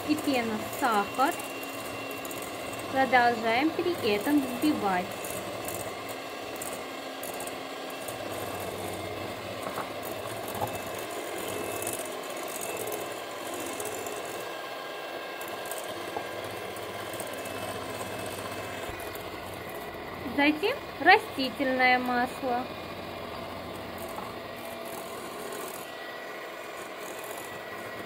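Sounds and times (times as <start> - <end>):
electric hand mixer whisking: 0.0 - 28.0.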